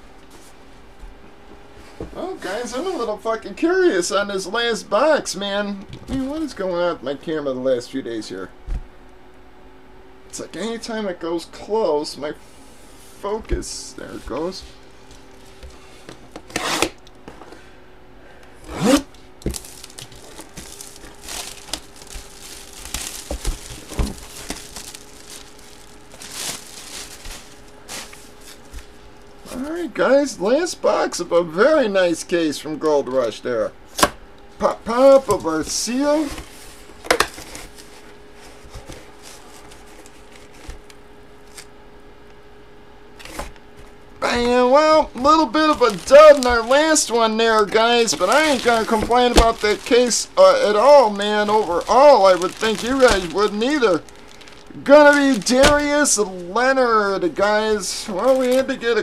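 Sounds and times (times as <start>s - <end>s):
faint steady hum: 0.0s - 59.0s
plastic wrap tearing and crinkling: 18.9s - 29.3s, 44.3s - 56.6s, 58.1s - 58.8s
cardboard rustle: 19.4s - 29.3s, 35.0s - 40.8s, 44.2s - 56.6s.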